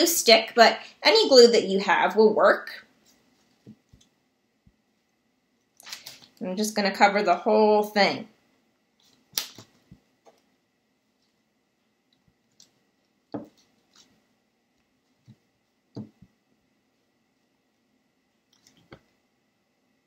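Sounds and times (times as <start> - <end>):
soft taps on table: 13.3 - 13.6, 16.0 - 16.3.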